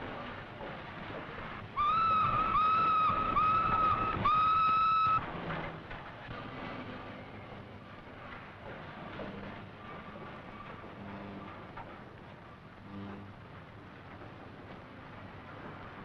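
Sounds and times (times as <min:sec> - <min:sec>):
steady noisy background: 0:00.0 - 0:16.0
steam locomotive whistle blasts: 0:01.8 - 0:05.2.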